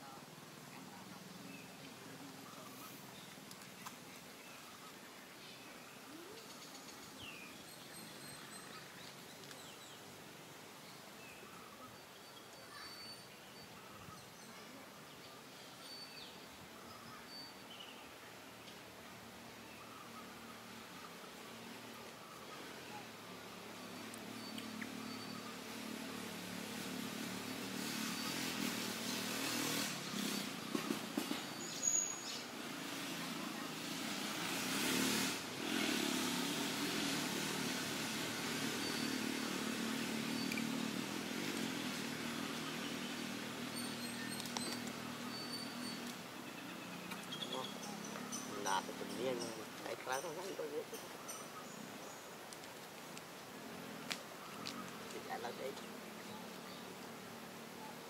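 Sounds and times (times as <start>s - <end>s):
faint outdoor ambience: 0.0s - 58.0s
bird chirps: 1.1s - 10.1s, 10.8s - 18.9s, 19.6s - 25.8s, 27.5s - 32.6s, 38.6s - 41.0s, 42.4s - 52.3s.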